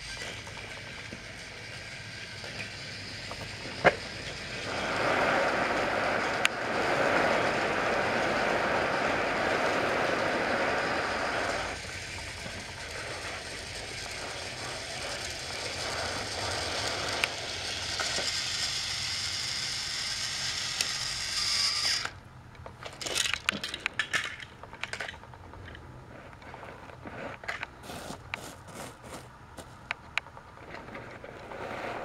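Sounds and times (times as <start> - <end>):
toy train motor whirr: 0.0 - 22.2, 22.9 - 25.8
high whine: 0.0 - 22.3
light clicks and rattles: 22.5 - 27.7.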